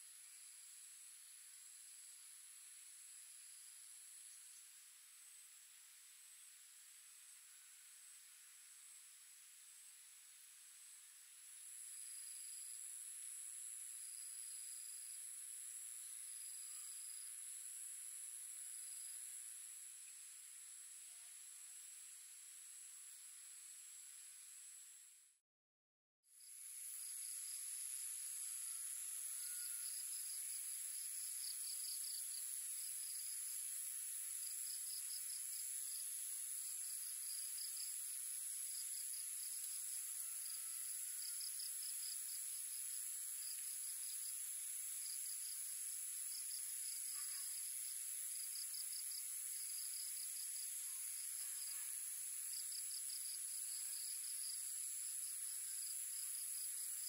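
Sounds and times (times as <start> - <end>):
pulsing insect trill: 26.4 - 57.0
insects shrill drone: 27.2 - 30.8, 39.8 - 42.2.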